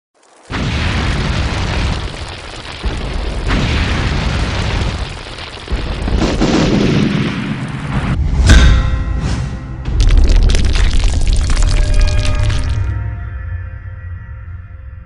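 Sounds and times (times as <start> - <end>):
rain hissing: 0.2 - 7.9
thunder rumbling: 0.5 - 8.2
sharp thunder crack: 0.5 - 8.5.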